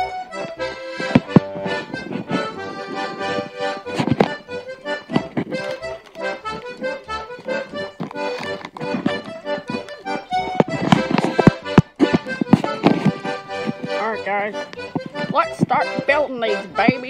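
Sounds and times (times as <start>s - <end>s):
background music melody: 0.0s - 17.0s.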